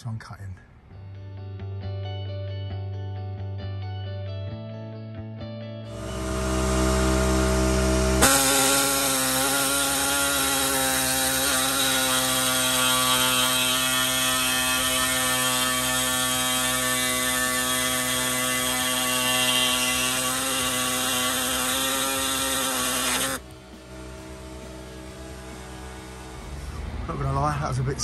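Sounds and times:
reciprocating saw cutting steel: 5.9 - 23.4.

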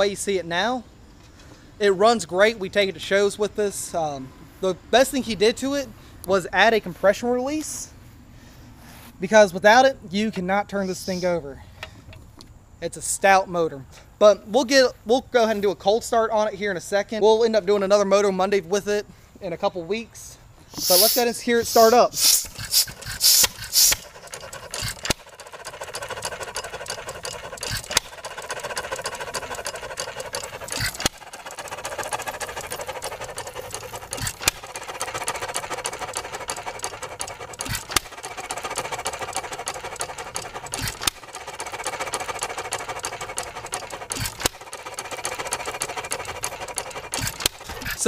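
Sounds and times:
engine coasting whir: 20.6 - 48.0.

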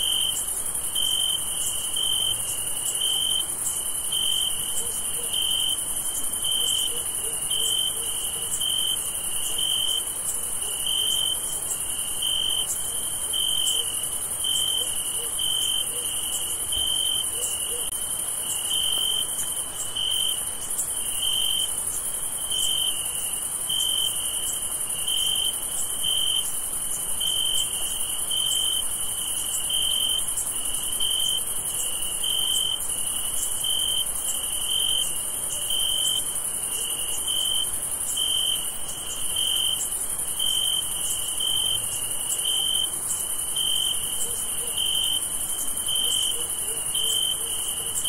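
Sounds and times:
crickets chirping trill: 0.0 - 48.0
high-pitched insect chorus: 0.0 - 48.0.

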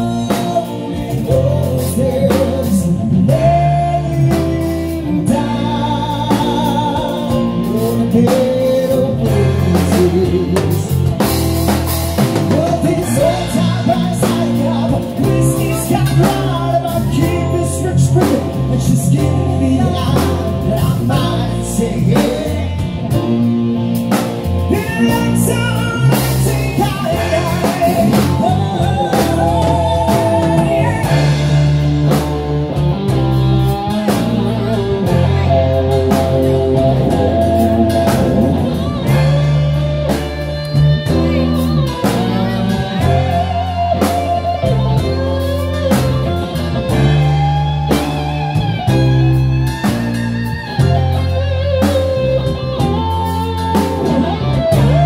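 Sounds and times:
man singing through pa: 0.0 - 11.3, 12.2 - 23.3, 24.6 - 32.2, 33.8 - 40.4
live rock band: 0.0 - 55.0.

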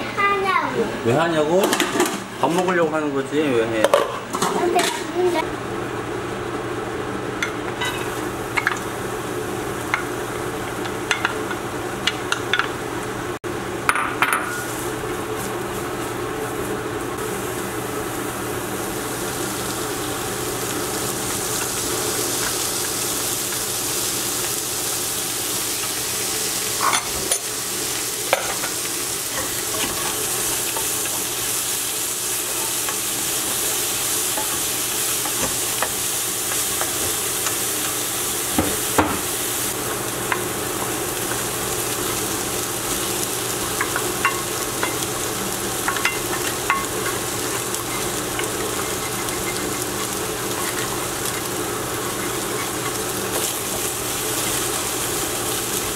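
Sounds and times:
vegetables sizzling in oil: 7.4 - 55.9
wooden spatula scraping wok: 46.2 - 53.5.

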